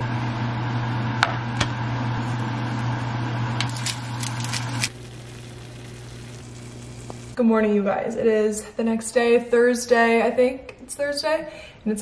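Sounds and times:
low mechanical hum: 0:00.0 - 0:07.5
pepper grinder clicking: 0:03.6 - 0:05.0.

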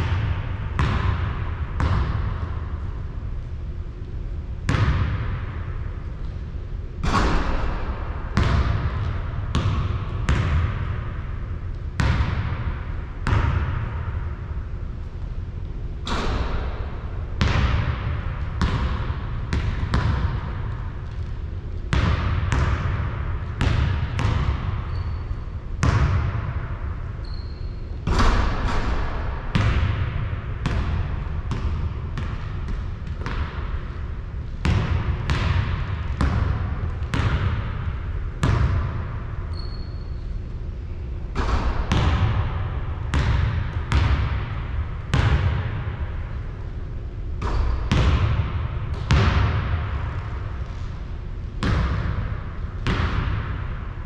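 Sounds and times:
steady low rumble: 0:00.0 - 0:27.2, 0:27.8 - 0:39.5, 0:40.2 - 0:54.0
basketball bouncing on a court: 0:00.0 - 0:54.0.

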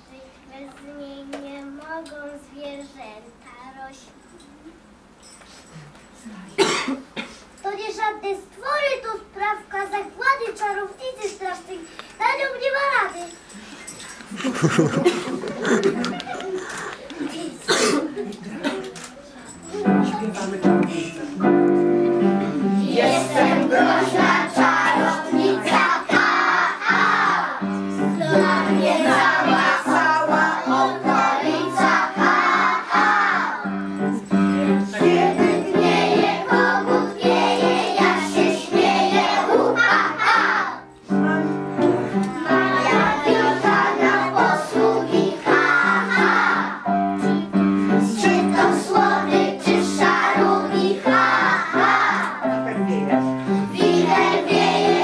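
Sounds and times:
instrumental backing: 0:18.3 - 0:55.0.

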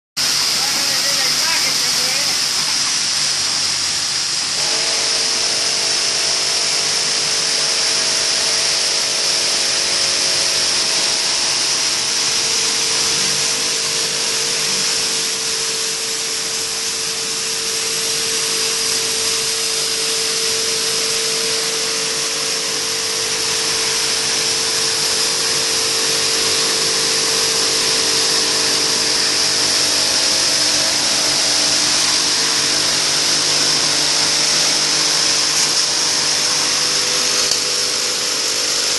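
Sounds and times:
machine running with high hiss: 0:00.2 - 0:38.9.

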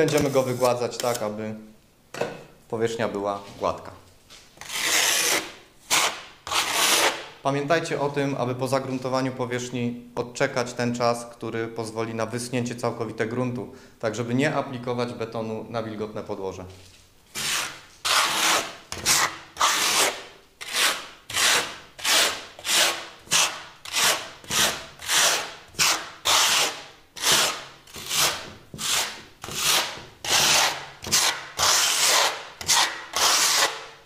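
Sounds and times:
trowel scraping plaster: 0:00.0 - 0:01.4, 0:04.6 - 0:07.2, 0:17.3 - 0:33.9.

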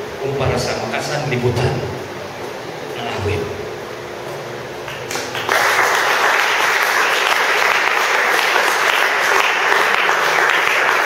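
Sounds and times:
congregation clapping: 0:04.8 - 0:11.0.

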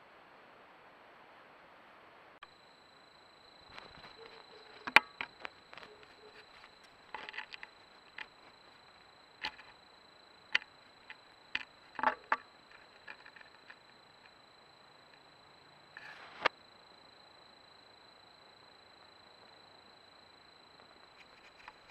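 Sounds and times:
sharp snaps and crackles: 0:03.6 - 0:09.8.

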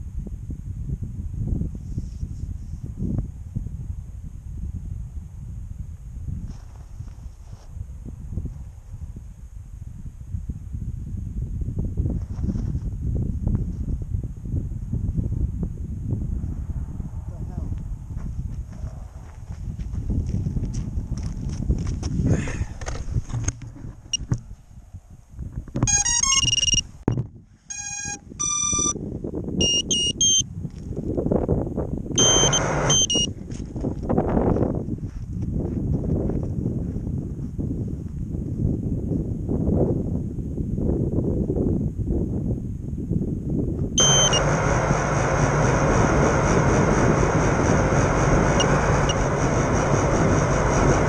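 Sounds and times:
low rumble: 0:07.8 - 0:29.0, 0:42.6 - 0:51.0
drone motors whirring: 0:25.8 - 0:26.8, 0:27.7 - 0:28.9, 0:32.2 - 0:33.3, 0:44.0 - 0:51.0
electronic beeping: 0:25.8 - 0:29.0, 0:29.6 - 0:30.4, 0:32.2 - 0:33.3, 0:44.0 - 0:44.4
brief chirps: 0:25.9 - 0:26.8, 0:27.7 - 0:29.0, 0:29.6 - 0:30.4, 0:32.2 - 0:33.3, 0:44.0 - 0:44.4.

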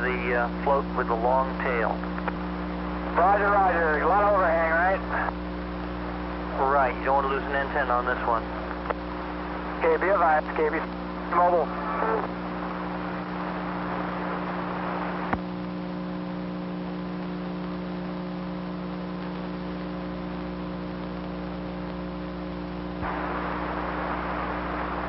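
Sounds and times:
electrical mains hum: 0:00.0 - 0:25.0
radio channel hiss: 0:00.0 - 0:25.0
click: 0:02.1 - 0:02.4.

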